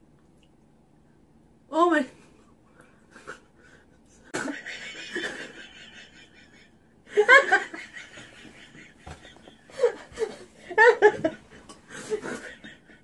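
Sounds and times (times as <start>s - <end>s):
women laughing: 3.1s - 13.0s.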